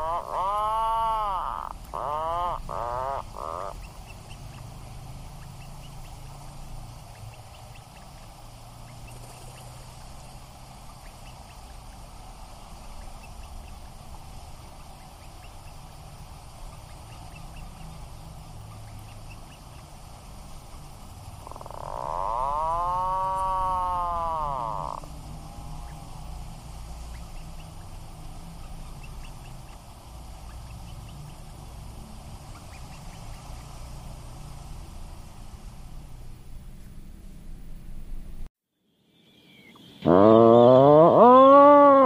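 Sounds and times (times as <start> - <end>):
puffin calls: 0.0 - 4.0, 21.4 - 25.1.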